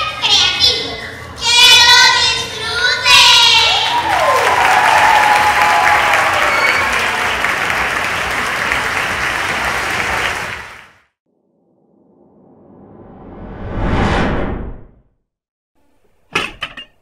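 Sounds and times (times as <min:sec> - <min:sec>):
audience applauding: 0:03.9 - 0:11.0.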